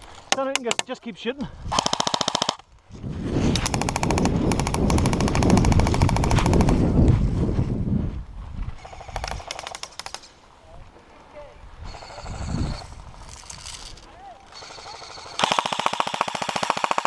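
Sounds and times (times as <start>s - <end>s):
airsoft gun firing bursts: 1.7s - 2.6s, 14.5s - 17.0s.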